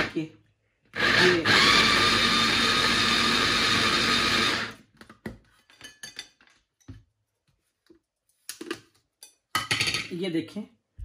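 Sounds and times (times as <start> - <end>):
food chopper motor running: 1.0 - 4.8.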